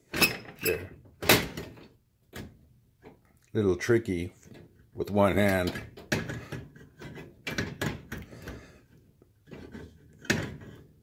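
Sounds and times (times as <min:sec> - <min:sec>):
metal clicks and knocks: 0:04.4 - 0:08.6.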